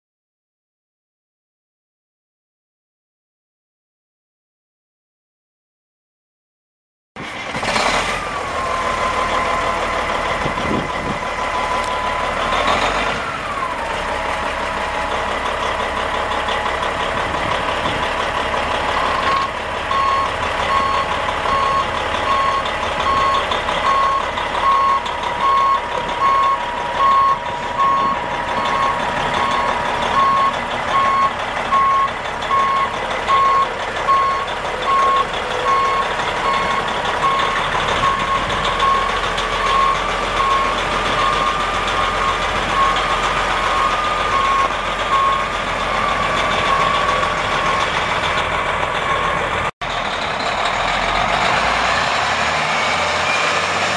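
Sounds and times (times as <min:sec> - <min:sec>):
diesel truck engine running: 0:07.2 - 0:53.9
backup alarm beeping: 0:19.1 - 0:43.0, 0:43.7 - 0:47.2.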